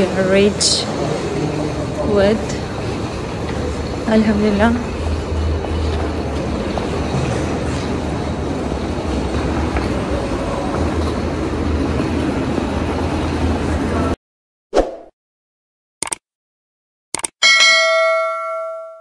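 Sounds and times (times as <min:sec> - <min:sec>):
rumbling hall noise: 0:00.0 - 0:14.2
suitcase wheels on tiled floor: 0:00.2 - 0:13.7
short swish: 0:14.7 - 0:15.1.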